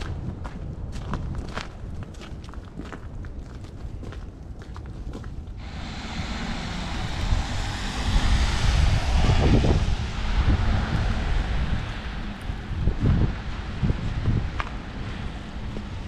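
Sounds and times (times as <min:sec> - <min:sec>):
wind buffeting microphone: 0:00.0 - 0:16.0
tyres hissing on wet street: 0:05.6 - 0:16.0.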